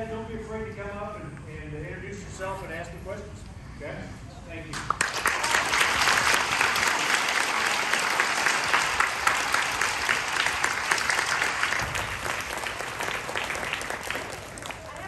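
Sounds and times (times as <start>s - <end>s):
children applauding: 4.9s - 15.0s.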